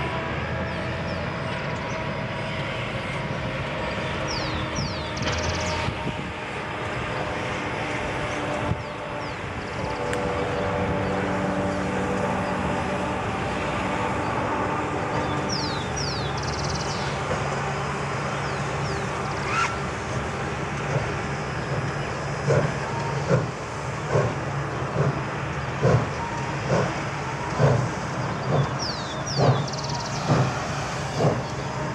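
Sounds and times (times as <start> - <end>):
steam locomotive exhaust beats: 0.0 - 31.9
train coaches rumbling: 0.0 - 31.9
bird chirping: 28.2 - 30.5.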